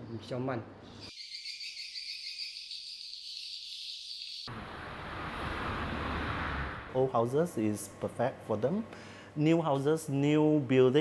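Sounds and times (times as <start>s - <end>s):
broad rushing noise: 4.5s - 7.4s.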